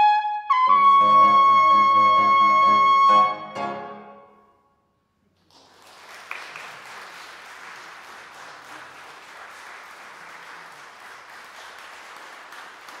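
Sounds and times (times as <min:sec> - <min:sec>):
audience applause: 0:05.4 - 0:13.0.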